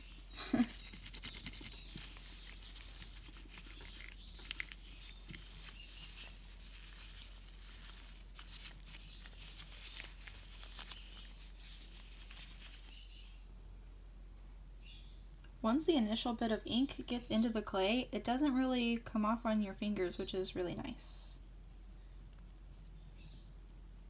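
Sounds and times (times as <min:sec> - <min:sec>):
gloved fingers kneading clay: 0:00.0 - 0:13.2.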